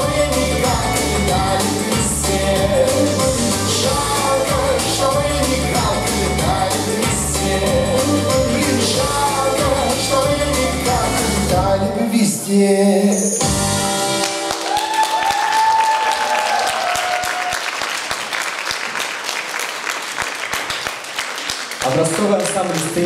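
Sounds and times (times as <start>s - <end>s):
dance music with singing: 0.0s - 14.2s
audience applauding: 14.1s - 23.0s.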